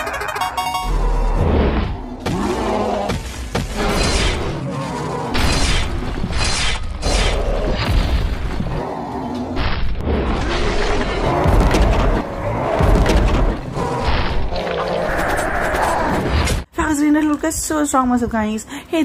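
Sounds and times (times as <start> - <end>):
booms and impacts: 9.6 - 14.4.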